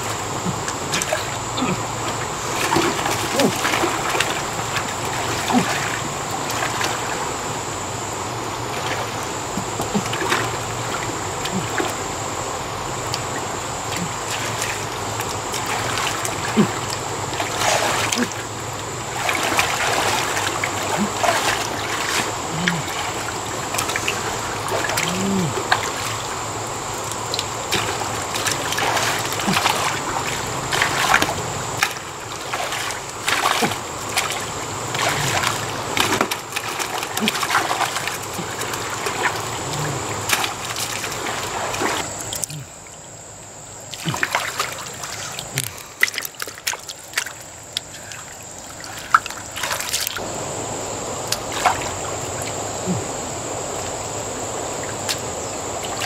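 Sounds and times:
water trickling: 0:00.0 - 0:56.0
hands splashing in muddy water: 0:00.5 - 0:07.1, 0:13.9 - 0:18.5, 0:19.1 - 0:42.6, 0:43.9 - 0:50.2.

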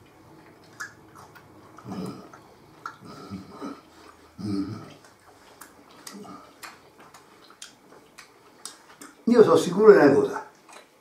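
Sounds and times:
man chewing: 0:00.0 - 0:09.3, 0:10.5 - 0:11.0
mouth clicks: 0:00.6 - 0:09.2
man murmuring: 0:04.4 - 0:05.0.

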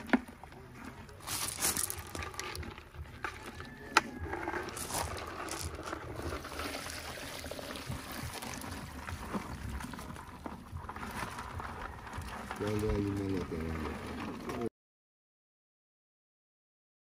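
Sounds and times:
water trickling and splashing: 0:04.8 - 0:14.7.

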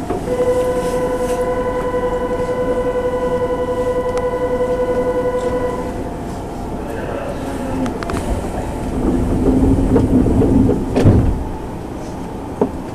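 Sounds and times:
departure buzzer steady tone: 0:00.3 - 0:06.0.

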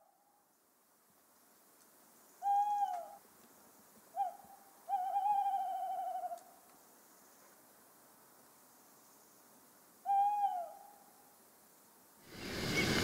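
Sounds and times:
owl hooting: 0:02.4 - 0:03.2, 0:04.1 - 0:06.6, 0:10.0 - 0:11.2.

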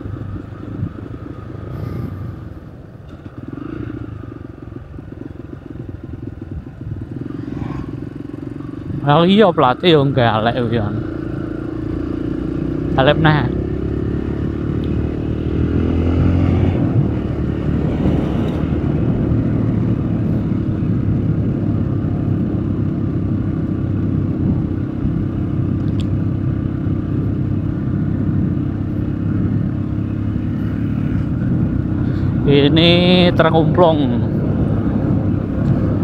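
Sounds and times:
vehicle engine drone: 0:00.0 - 0:36.0
tyre and wind noise: 0:14.0 - 0:36.0.

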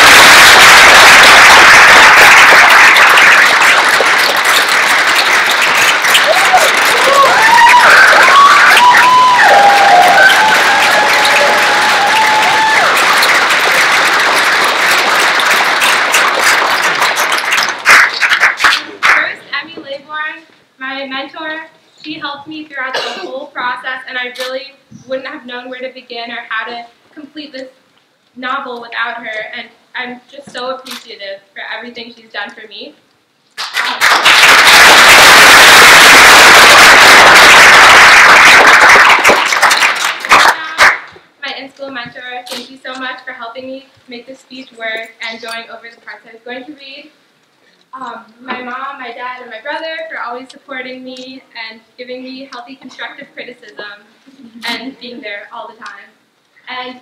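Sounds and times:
audience applauding: 0:00.0 - 0:19.3, 0:33.6 - 0:41.2.

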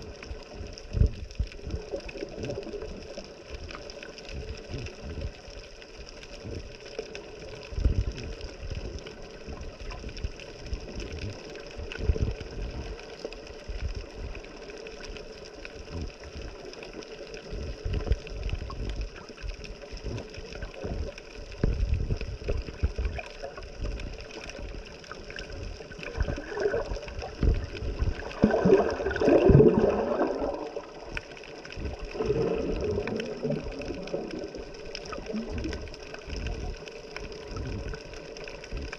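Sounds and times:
water sloshing and gurgling: 0:00.0 - 0:38.9.

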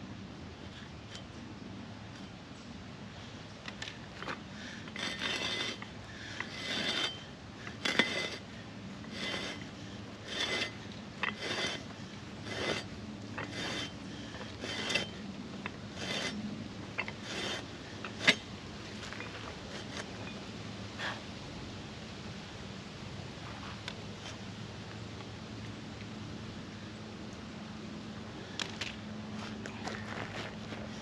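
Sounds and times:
metal anchor scraping in gravelly soil: 0:03.6 - 0:21.1.

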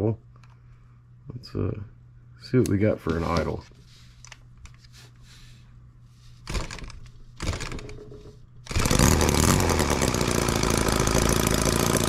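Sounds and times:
model engine running: 0:08.7 - 0:12.0.

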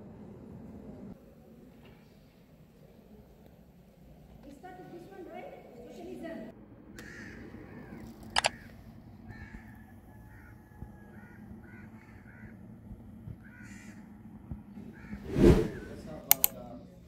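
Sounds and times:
birds calling: 0:07.0 - 0:14.1.

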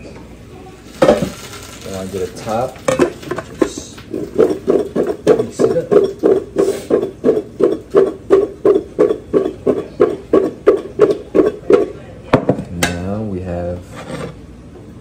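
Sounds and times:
potatoes knocking in a bowl: 0:00.9 - 0:13.0.

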